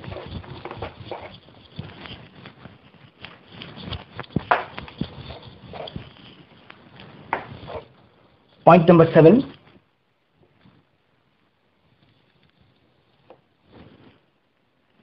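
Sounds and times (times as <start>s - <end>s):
eraser wiping whiteboard: 0.0s - 2.4s, 7.4s - 7.9s.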